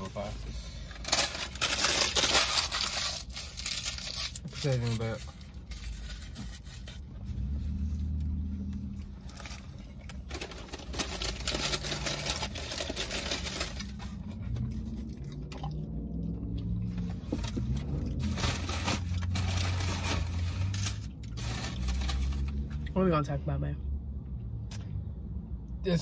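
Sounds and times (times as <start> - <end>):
low steady hum: 0.0 - 25.9
paper wrappers crinkling: 0.9 - 7.0, 9.2 - 14.2, 17.3 - 22.7.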